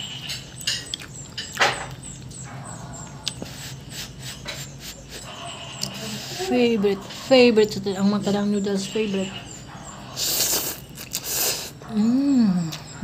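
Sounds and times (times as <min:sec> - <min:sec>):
wet chewing and mouth clicks: 0:00.3 - 0:02.4, 0:03.0 - 0:06.2, 0:10.2 - 0:11.9.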